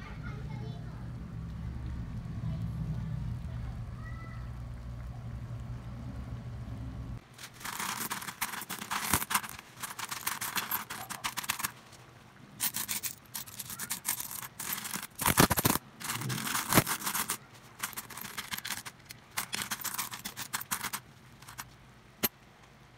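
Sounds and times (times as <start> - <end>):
low hum: 0.9 - 7.2
metal coins jingling: 7.4 - 11.8, 12.6 - 21.7.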